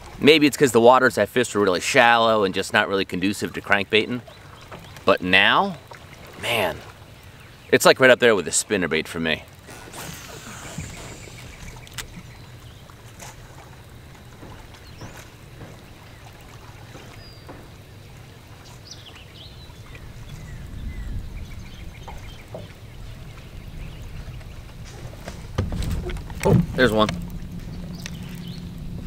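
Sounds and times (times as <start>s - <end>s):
steady low rumble: 22.8s - 29.0s.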